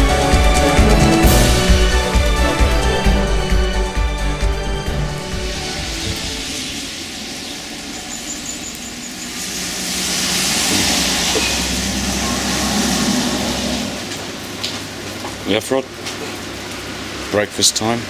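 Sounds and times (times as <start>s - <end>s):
rain on wet pavement: 0.0s - 18.0s.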